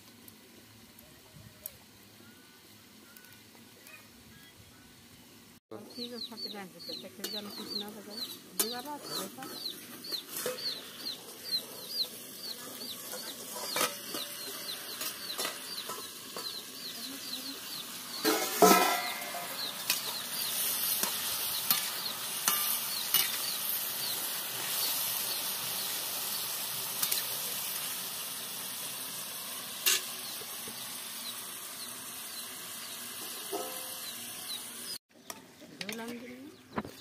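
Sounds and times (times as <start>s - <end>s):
vegetables sizzling in wok: 0.0s - 3.8s, 5.0s - 35.4s
metal spatula scraping pan: 7.2s - 11.0s, 13.0s - 16.6s, 18.1s - 23.6s
loud metal clank: 18.2s - 19.6s.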